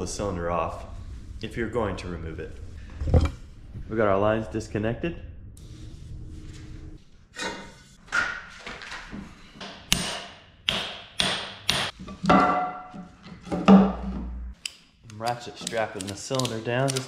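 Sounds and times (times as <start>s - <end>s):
hammer striking steel: 9.9s - 12.9s.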